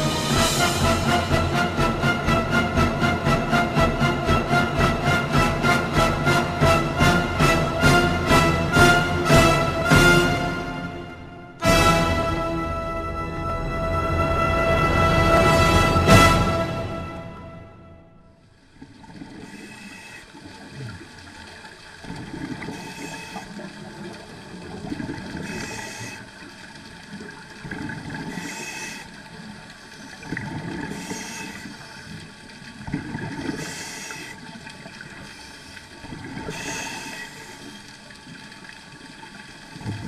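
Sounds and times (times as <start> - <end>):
exhaled bubbles rushing: 18.7 - 40.0
regulator inhale hiss: 19.5 - 20.3, 22.7 - 23.5, 25.4 - 26.3, 28.3 - 29.1, 30.9 - 32.0, 33.6 - 34.4, 36.5 - 37.8.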